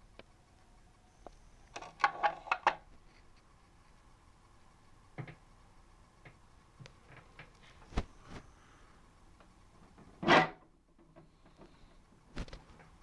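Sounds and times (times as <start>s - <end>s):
plastic toy truck clicking and knocking: 1.7s - 2.9s.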